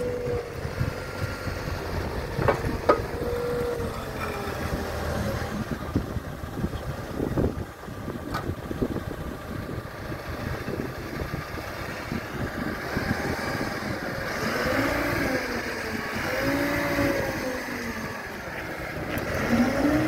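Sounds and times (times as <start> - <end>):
hydraulic whine: 0.0 - 5.8
diesel engine running: 0.0 - 20.0.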